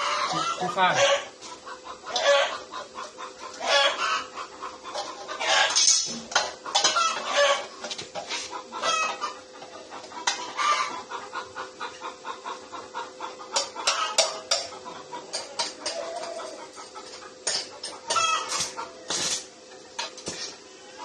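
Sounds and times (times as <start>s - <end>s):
chickens clucking: 0.0s - 21.0s.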